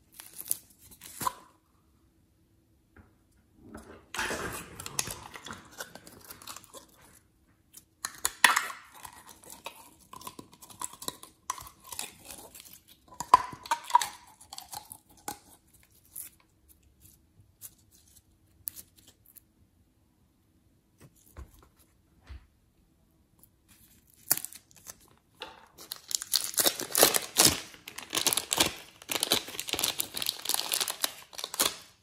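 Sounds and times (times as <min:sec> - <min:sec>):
slime squelching and crackling: 0:25.7 - 0:32.0.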